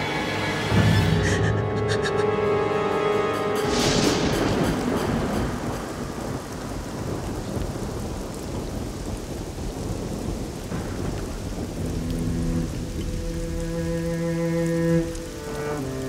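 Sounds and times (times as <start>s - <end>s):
background music held notes: 0.0s - 8.4s, 11.6s - 16.0s
rain falling: 0.0s - 16.0s
low rumble of thunder: 3.7s - 14.4s.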